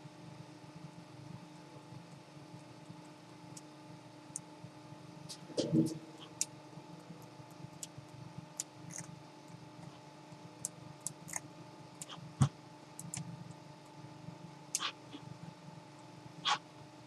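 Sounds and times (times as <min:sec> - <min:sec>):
steady low hum: 0:00.0 - 0:17.0
computer mouse clicks: 0:13.0 - 0:13.3.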